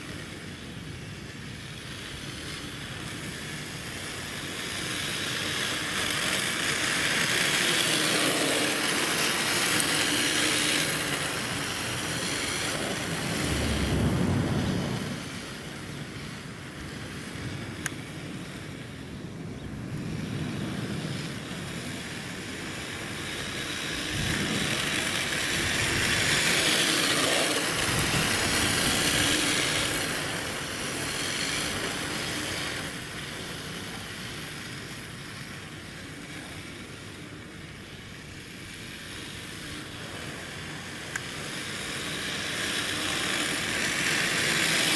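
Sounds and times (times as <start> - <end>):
rc car tyres hissing on asphalt: 0.0 - 44.9
low rumble: 12.8 - 16.1.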